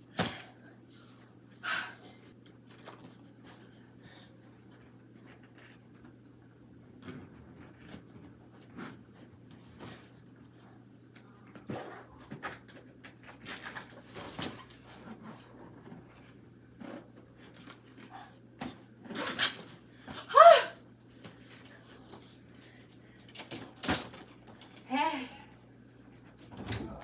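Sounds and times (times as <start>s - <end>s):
belongings rustling and clinking: 4.5s - 20.1s.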